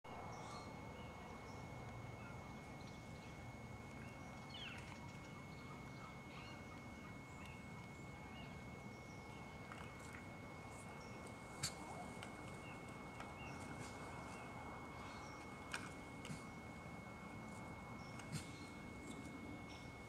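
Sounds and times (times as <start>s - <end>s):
turkey calls: 10.9s - 16.5s.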